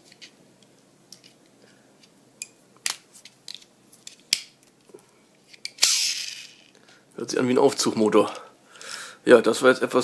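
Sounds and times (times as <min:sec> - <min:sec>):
toy car clicks and crinkles: 0:05.5 - 0:06.8.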